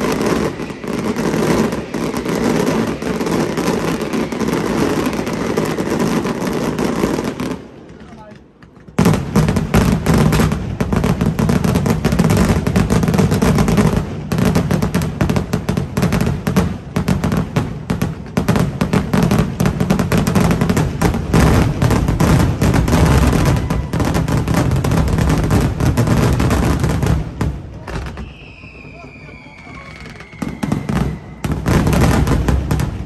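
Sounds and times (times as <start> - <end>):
fireworks bangs and cracks: 0.0 - 33.0.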